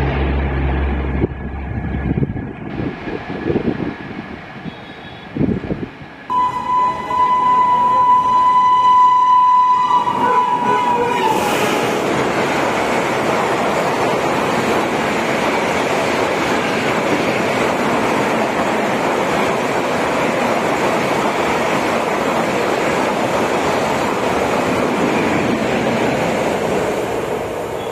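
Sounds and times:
wind buffeting microphone: 0:01.0 - 0:06.3
train coaches rushing past: 0:02.7 - 0:27.9.

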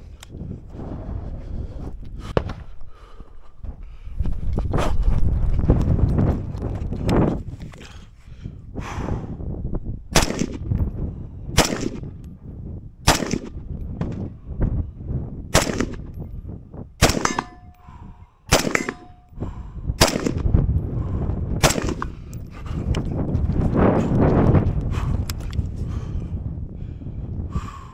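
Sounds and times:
wind rumbling on microphone: 0:00.0 - 0:27.9
rifle shots: 0:10.2 - 0:10.7, 0:11.6 - 0:12.0, 0:13.1 - 0:13.6, 0:15.5 - 0:16.1, 0:17.0 - 0:17.8, 0:18.5 - 0:19.2, 0:20.0 - 0:20.4, 0:21.6 - 0:22.2
steel target ringing: 0:17.1 - 0:17.8, 0:18.6 - 0:19.3.

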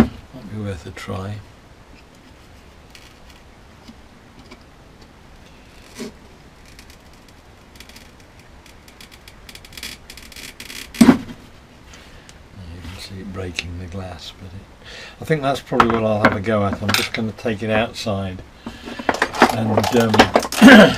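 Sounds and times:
glass screen clicks and crackles: 0:06.6 - 0:11.1.

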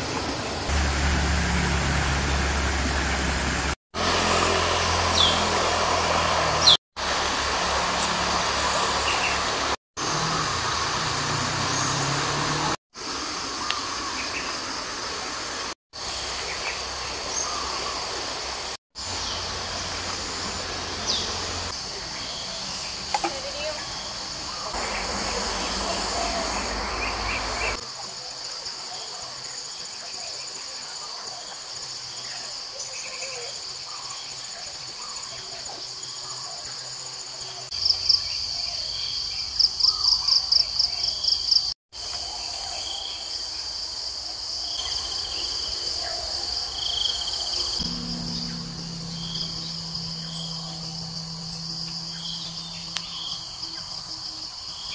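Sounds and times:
pulsing sharp chirps: 0:47.8 - 0:54.9.

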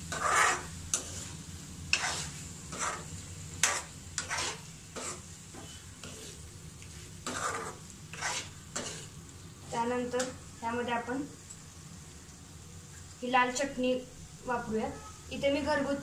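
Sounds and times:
spoon stirring and scraping in pan: 0:00.0 - 0:10.4.

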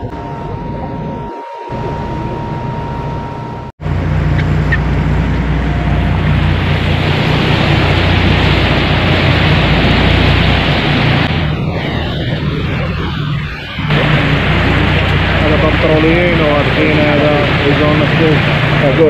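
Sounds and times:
boat engine hum: 0:00.0 - 0:19.0
water rushing: 0:00.0 - 0:19.0
wind: 0:00.0 - 0:19.0.

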